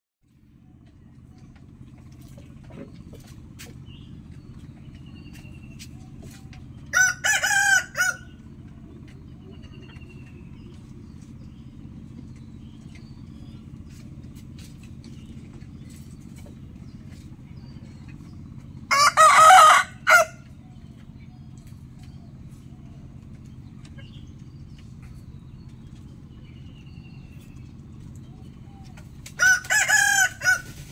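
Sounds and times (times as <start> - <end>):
steady low hum: 0.2 - 30.9
rooster crowing: 6.9 - 8.4, 18.9 - 20.4, 29.4 - 30.8.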